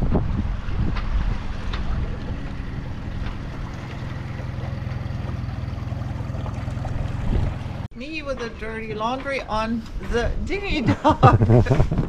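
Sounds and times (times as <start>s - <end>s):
outboard motor running: 0.9s - 7.9s.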